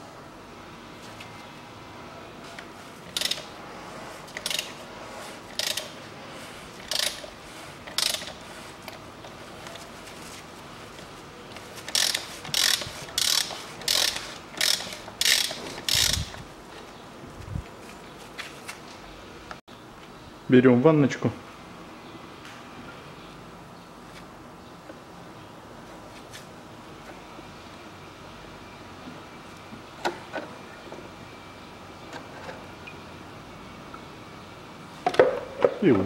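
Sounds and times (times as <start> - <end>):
socket ratchet clicking: 3.1 - 3.5, 4.4 - 4.8, 5.5 - 6.0, 6.8 - 9.0, 11.9 - 16.4.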